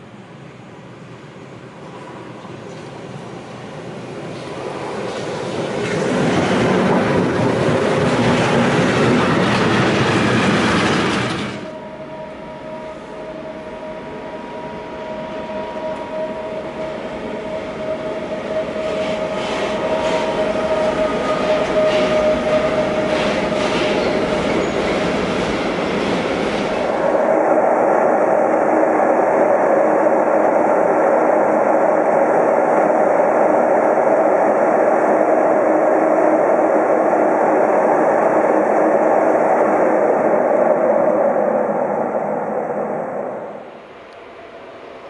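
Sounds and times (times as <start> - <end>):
freight train rushing past: 0.0 - 45.0
locomotive high whine: 0.0 - 45.0.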